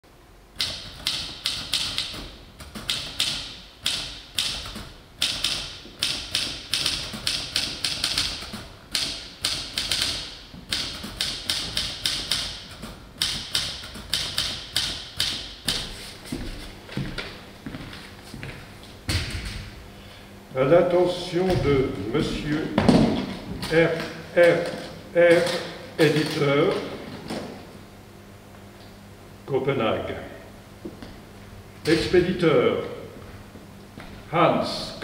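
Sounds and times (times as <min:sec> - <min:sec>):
manual typewriter typing: 0:00.6 - 0:15.8.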